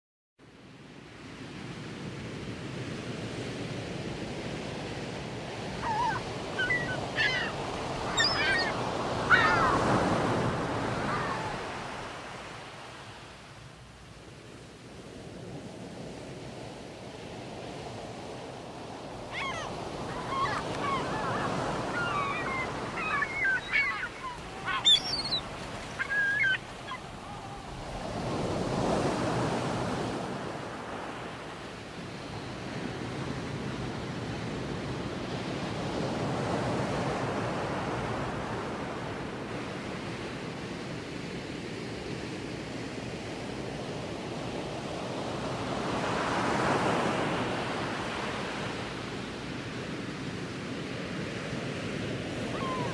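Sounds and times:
sea waves washing in: 1.1 - 40.8
short bird calls: 5.8 - 10.2, 19.3 - 27.8.

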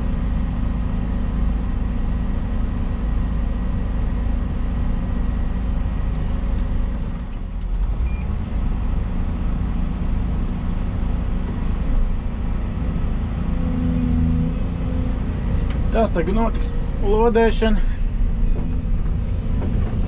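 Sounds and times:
excavator diesel engine running: 0.0 - 20.0.

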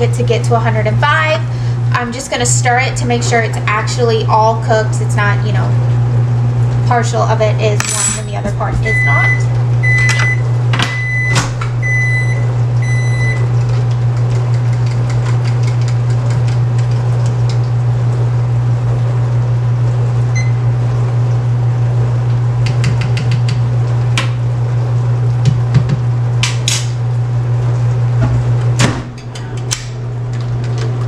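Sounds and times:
steady low hum: 0.0 - 31.0
microwave oven beeping: 7.7 - 13.9, 17.4 - 26.4.

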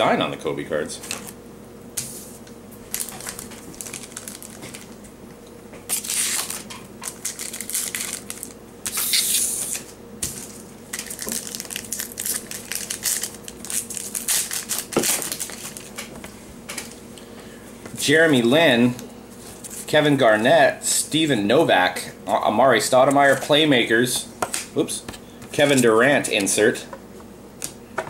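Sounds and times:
foil wrapper crinkling: 2.9 - 5.0, 5.9 - 16.1.

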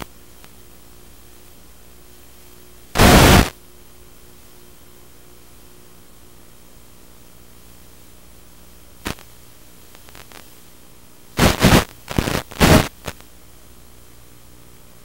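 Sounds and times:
steady audio hiss: 0.0 - 15.0
crackling radio static: 2.9 - 3.6, 9.0 - 13.4.

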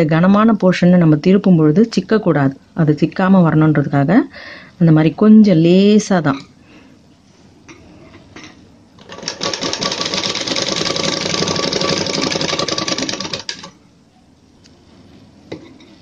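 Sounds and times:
sewing machine stitching: 9.0 - 13.7.

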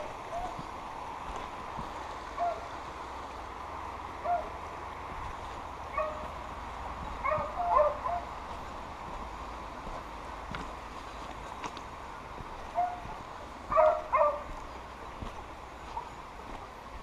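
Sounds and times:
dogs baying and yelping: 2.3 - 2.7, 4.2 - 4.6, 5.9 - 6.4, 7.1 - 8.4, 12.7 - 13.1, 13.7 - 14.7.

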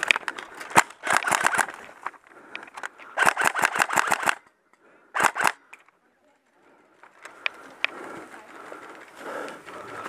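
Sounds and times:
airsoft rifle firing bursts: 0.7 - 1.8, 3.2 - 4.4, 5.1 - 5.7.

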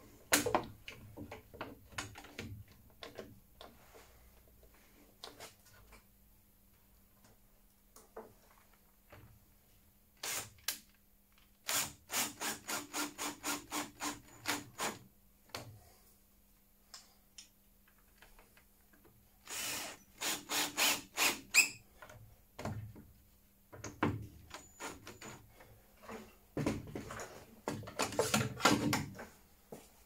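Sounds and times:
cordless drill bursts into wood: 19.4 - 21.7.

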